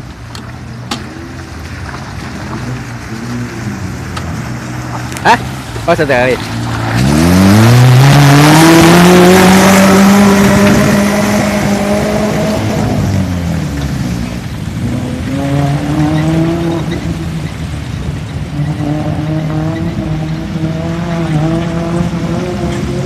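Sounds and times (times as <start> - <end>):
jeep engine revving: 0.0 - 23.0
water splashing around wheels: 0.0 - 23.0.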